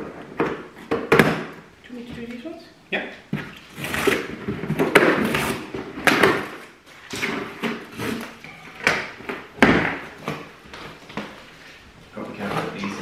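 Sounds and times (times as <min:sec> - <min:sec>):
cardboard scraping and rustling: 0:03.6 - 0:08.8.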